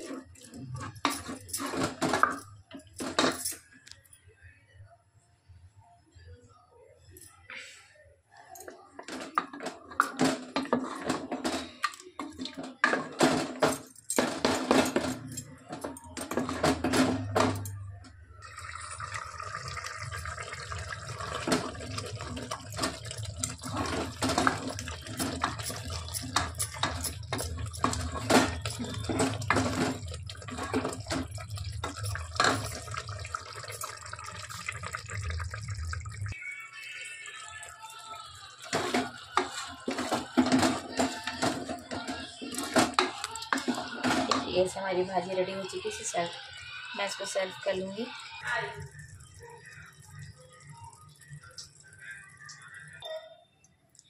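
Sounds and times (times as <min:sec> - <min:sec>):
spatula scraping metal pot: 0:09.8 - 0:13.1
liquid sloshing: 0:18.4 - 0:53.0.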